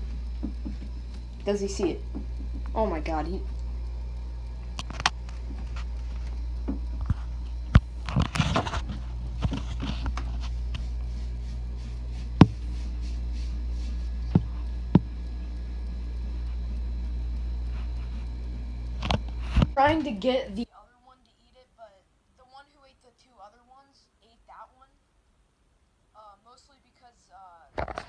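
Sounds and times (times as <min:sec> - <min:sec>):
sharp clicks and knocks: 0:00.0 - 0:02.8, 0:03.5 - 0:10.9, 0:14.2 - 0:15.3
tank equipment hum: 0:00.0 - 0:20.7.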